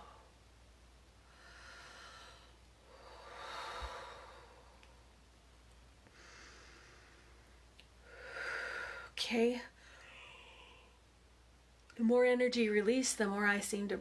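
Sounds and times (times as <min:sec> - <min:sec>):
woman breathing deeply: 0:01.2 - 0:05.1, 0:06.0 - 0:09.2, 0:09.8 - 0:11.1.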